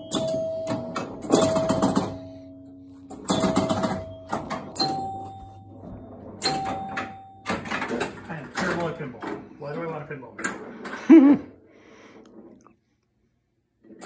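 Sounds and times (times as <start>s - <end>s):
pinball mechanical clacks: 0.0s - 2.4s, 3.1s - 9.5s
score chime ringing: 0.0s - 7.7s.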